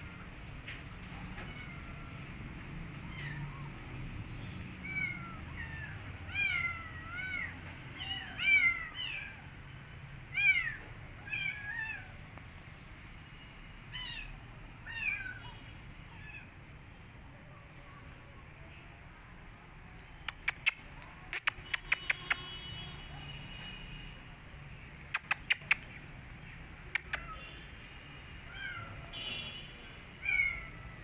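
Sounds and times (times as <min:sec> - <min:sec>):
kitten meowing: 0:04.8 - 0:09.4.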